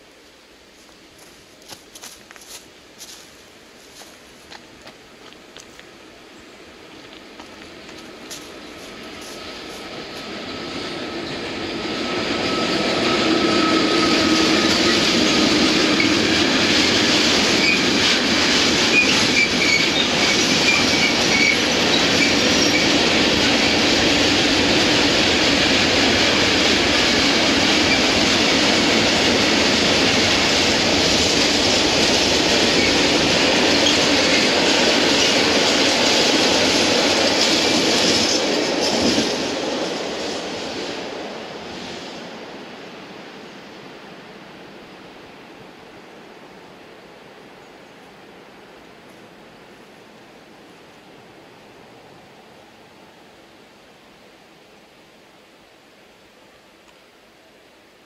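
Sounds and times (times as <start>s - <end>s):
freight train rolling past: 3.0s - 54.8s
wheels squealing: 12.1s - 18.1s, 18.9s - 23.0s.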